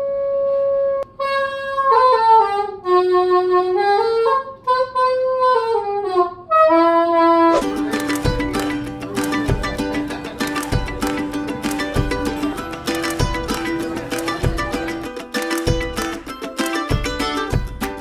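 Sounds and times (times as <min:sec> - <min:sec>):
plastic saxophone notes: 0:01.0 - 0:17.6
background music: 0:07.5 - 0:18.0.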